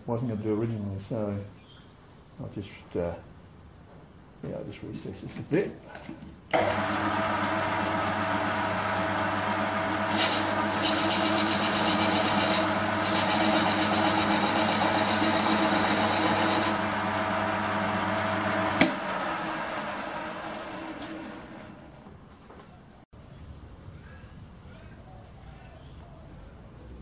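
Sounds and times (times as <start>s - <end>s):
lathe motor hum: 6.6s - 22.1s
drill bit boring into wood: 10.1s - 16.9s.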